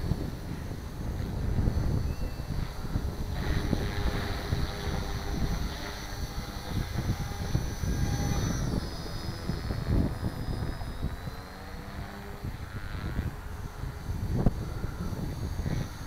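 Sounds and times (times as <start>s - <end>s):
helicopter motor whine: 0.0s - 16.0s
wind rumble on microphone: 0.0s - 16.0s.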